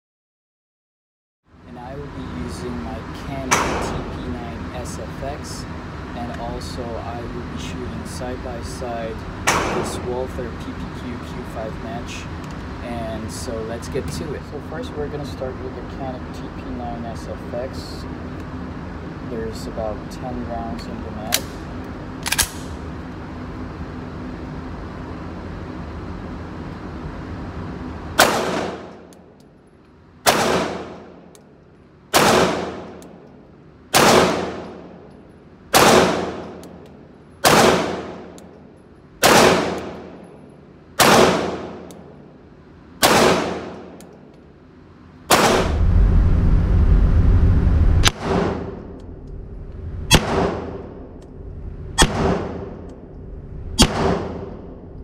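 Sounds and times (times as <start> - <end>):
ventilation hum: 1.5 - 55.0
pistol shots echoing: 3.5 - 4.1, 9.5 - 10.1, 28.2 - 29.1, 30.2 - 31.2, 32.1 - 33.0, 33.9 - 35.0, 35.7 - 36.8, 37.4 - 38.4, 39.2 - 40.3, 41.0 - 42.0, 43.0 - 44.0, 50.1 - 50.9, 52.0 - 52.8, 53.8 - 54.7
loud low rumble: 45.3 - 55.0.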